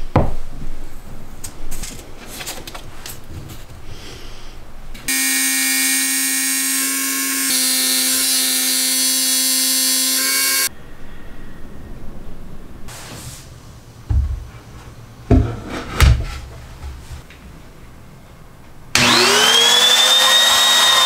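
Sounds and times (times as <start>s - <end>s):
router whining: 5.1s - 10.7s, 18.9s - 21.0s.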